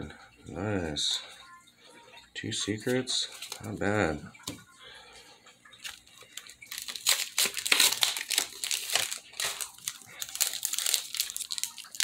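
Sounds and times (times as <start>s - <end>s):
foil wrapper crinkling: 3.2s - 3.8s, 5.8s - 12.0s.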